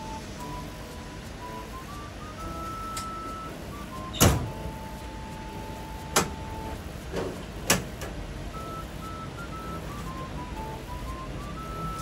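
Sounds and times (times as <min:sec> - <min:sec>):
simple beeping tune: 0:00.0 - 0:07.1, 0:08.2 - 0:12.0
vending machine clunk: 0:04.1 - 0:04.8, 0:06.0 - 0:06.4, 0:07.1 - 0:08.2
long electronic beep: 0:08.5 - 0:12.0.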